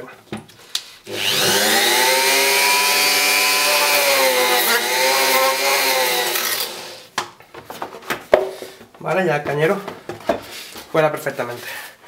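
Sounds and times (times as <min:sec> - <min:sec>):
rotary tool whining and grinding: 0:01.1 - 0:07.1.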